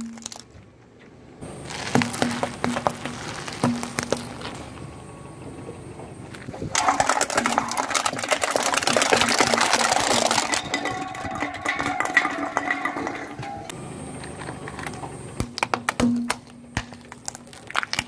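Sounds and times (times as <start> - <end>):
tyre crushing aluminium cans: 0.0 - 0.6, 1.5 - 4.6, 6.6 - 13.8, 14.4 - 18.0.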